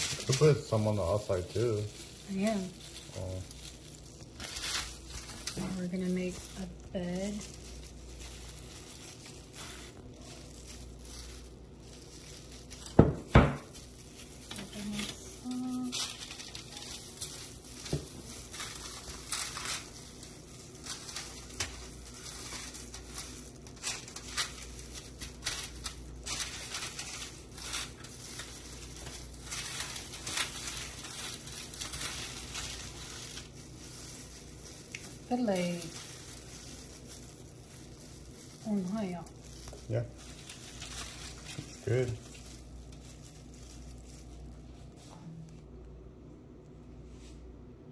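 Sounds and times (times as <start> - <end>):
aluminium foil crinkling: 0.0 - 46.0
plastic gloves rustling: 0.0 - 47.9.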